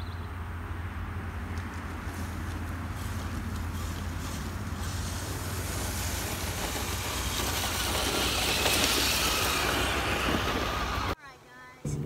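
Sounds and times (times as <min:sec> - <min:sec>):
rc truck electric motor: 0:03.0 - 0:11.2.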